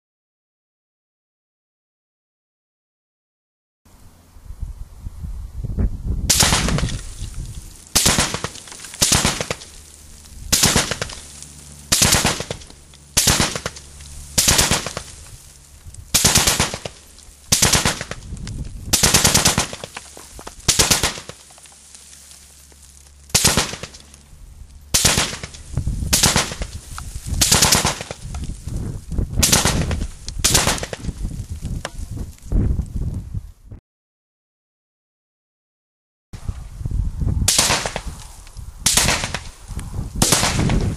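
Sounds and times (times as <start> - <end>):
machine gun firing bursts: 8.0 - 9.6, 10.5 - 11.1, 11.9 - 12.6, 13.2 - 13.8, 14.4 - 15.1, 16.1 - 18.2, 18.9 - 20.0, 20.7 - 21.4, 23.3 - 24.0, 24.9 - 26.7, 27.4 - 28.2, 29.4 - 31.0.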